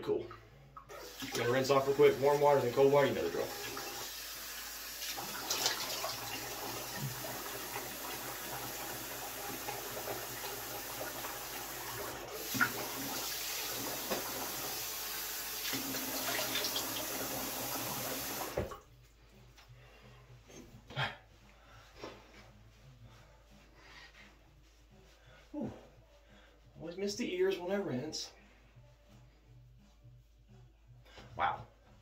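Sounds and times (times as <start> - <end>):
sink tap running: 0.9 - 18.8.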